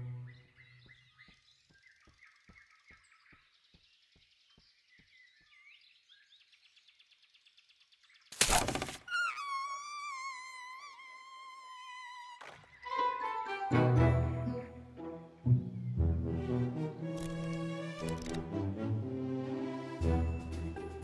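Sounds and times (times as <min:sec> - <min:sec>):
bird chirps: 0:00.0 - 0:13.0.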